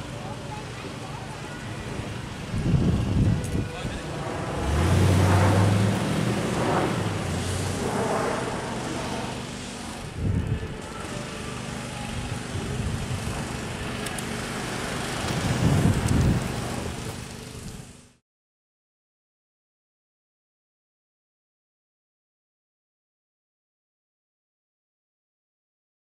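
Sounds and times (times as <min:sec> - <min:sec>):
truck engine driving off: 0:00.0 - 0:18.2
wind and road noise: 0:00.0 - 0:18.2
wind gusts on microphone: 0:02.0 - 0:10.8, 0:15.2 - 0:17.0.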